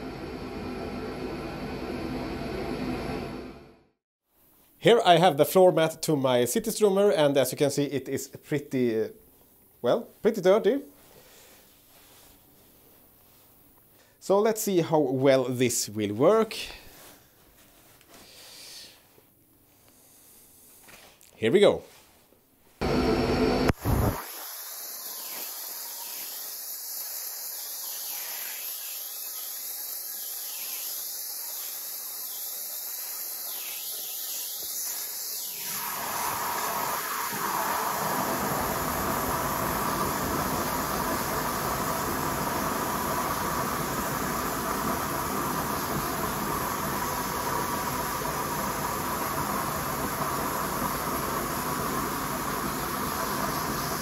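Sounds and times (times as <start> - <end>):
high hiss of compressed air: 23.7 - 54.0.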